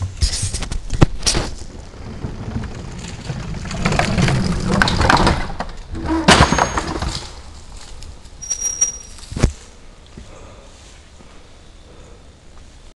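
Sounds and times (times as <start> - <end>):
teeter board knocking down: 0.8 - 7.4.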